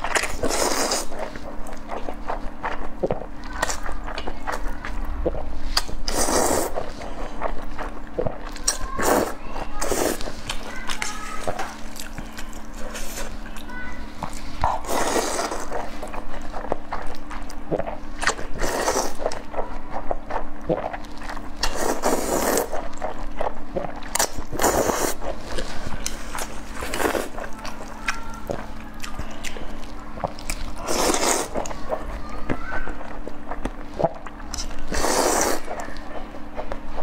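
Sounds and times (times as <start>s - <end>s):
faint steady hum: 0.0s - 37.0s
wet chewing: 0.0s - 37.0s
noodle slurping: 0.2s - 1.4s, 4.4s - 10.6s, 14.6s - 19.5s, 20.3s - 29.4s, 30.2s - 32.1s, 33.5s - 35.9s.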